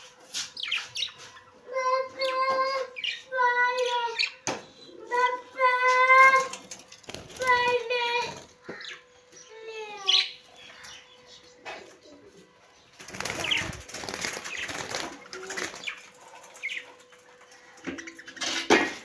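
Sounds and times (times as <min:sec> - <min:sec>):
birds flapping wings: 0:06.2 - 0:08.5, 0:13.0 - 0:17.4.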